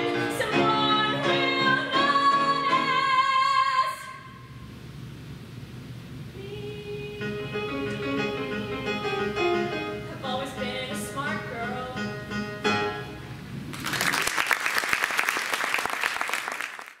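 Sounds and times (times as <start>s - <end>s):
girl singing: 0.0s - 4.4s, 6.4s - 9.2s, 10.1s - 12.1s
electric keyboard: 7.2s - 13.4s
audience applause: 13.7s - 17.0s.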